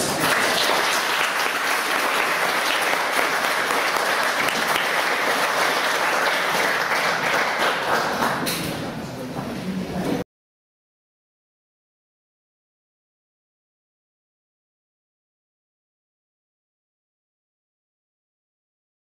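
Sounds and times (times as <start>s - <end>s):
audience applause: 0.0s - 8.5s.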